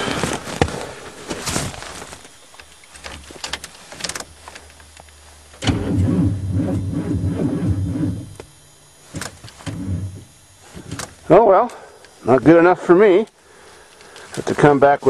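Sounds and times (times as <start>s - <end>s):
car starter motor cranking: 5.5s - 11.7s.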